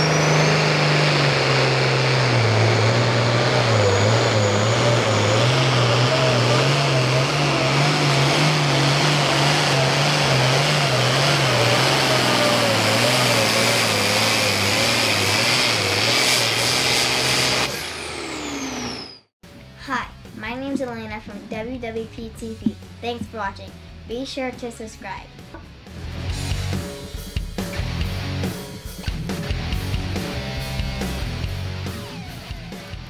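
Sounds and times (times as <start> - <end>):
tractor diesel engine at full throttle: 0.0 - 19.2.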